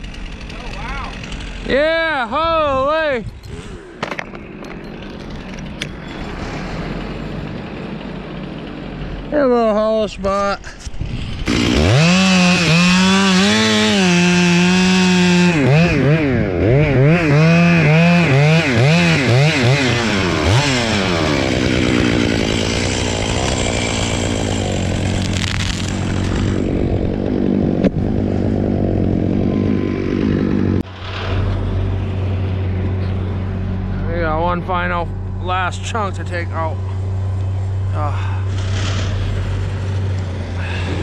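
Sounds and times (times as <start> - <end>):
chainsaw cutting wood: 0.0 - 1.8, 4.0 - 9.3, 10.9 - 31.9, 38.4 - 41.0.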